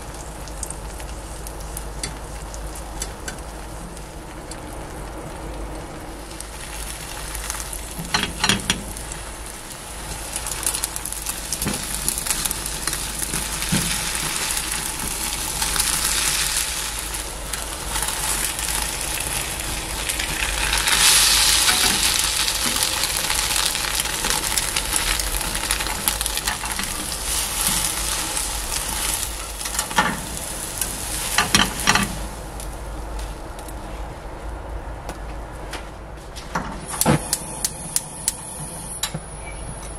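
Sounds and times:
egg sizzling in a frying pan: 0:00.0 - 0:33.8.

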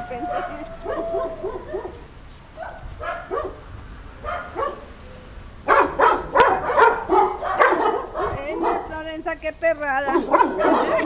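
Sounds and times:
dogs barking: 0:00.1 - 0:03.6, 0:04.2 - 0:04.9, 0:05.6 - 0:09.0, 0:10.1 - 0:11.0.

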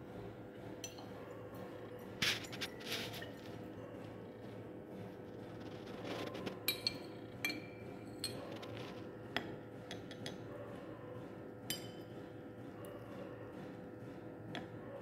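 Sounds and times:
glass rod clinking against glassware: 0:06.7 - 0:08.4, 0:11.7 - 0:12.0.

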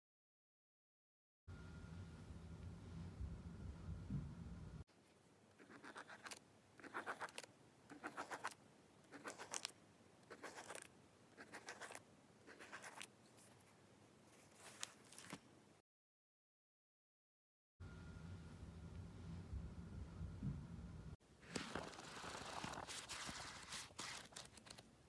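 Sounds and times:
pen scribbling on paper: 0:05.6 - 0:09.6, 0:10.3 - 0:13.0.

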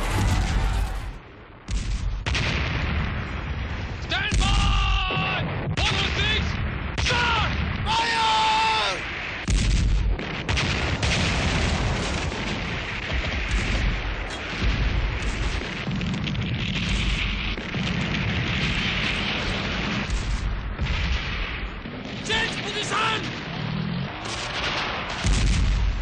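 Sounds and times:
low rumble: 0:00.0 - 0:02.3
gunfire: 0:00.0 - 0:03.7, 0:09.0 - 0:26.0
explosions: 0:00.0 - 0:26.0.

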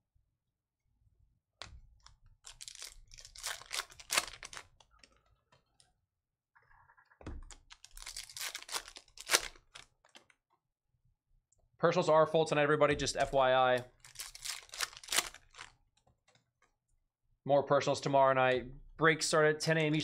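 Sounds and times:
trading cards flipped by hand: 0:01.6 - 0:05.2, 0:07.4 - 0:10.4.

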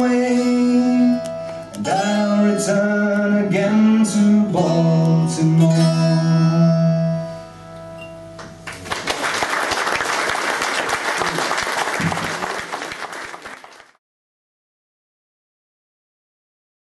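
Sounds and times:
audience applause: 0:08.6 - 0:14.0.

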